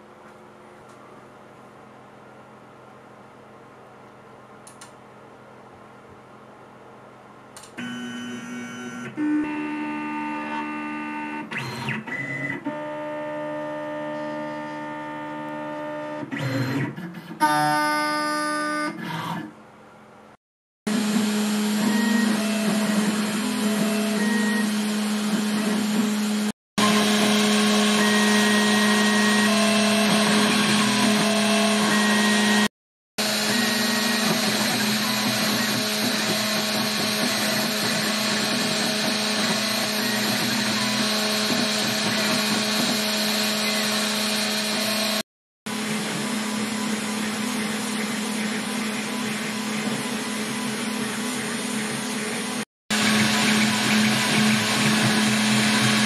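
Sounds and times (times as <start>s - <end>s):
milling machine motor hum: 20.9s - 56.0s.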